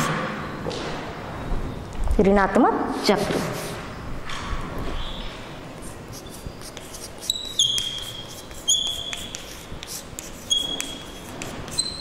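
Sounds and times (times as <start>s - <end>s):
high squeaks of writing tip: 5.8s - 12.0s.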